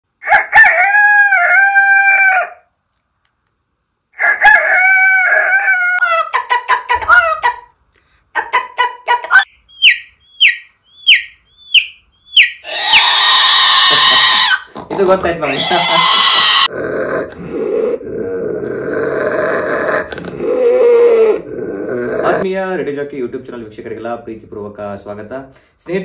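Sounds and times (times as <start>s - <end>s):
person imitating rooster crowing: 0.2s - 2.7s, 4.2s - 6.4s, 12.7s - 14.7s, 15.4s - 16.7s
person imitating hen clucking: 4.2s - 7.7s, 8.4s - 9.5s, 12.6s - 22.4s.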